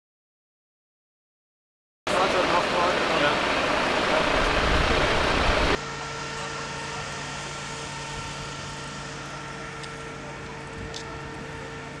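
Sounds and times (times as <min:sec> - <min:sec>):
loud rush of noise: 0:02.1 - 0:05.8
machine hum with held tones: 0:02.1 - 0:12.0.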